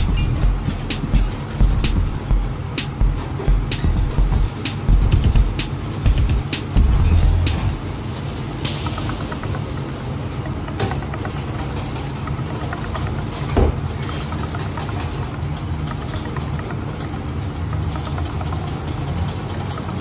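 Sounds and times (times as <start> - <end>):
extraction hood drone: 0.0 - 10.7.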